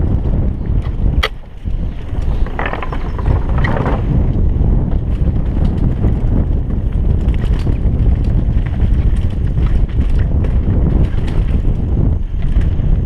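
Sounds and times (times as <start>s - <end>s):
mountain bike rolling on dirt: 0.0s - 13.0s
wind buffeting microphone: 0.0s - 13.0s
sharp click: 0.8s - 1.4s.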